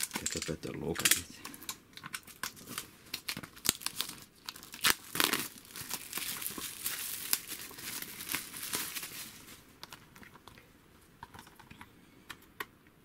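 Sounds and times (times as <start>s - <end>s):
plastic shrink-wrap tearing: 0.0s - 1.2s, 2.0s - 10.0s.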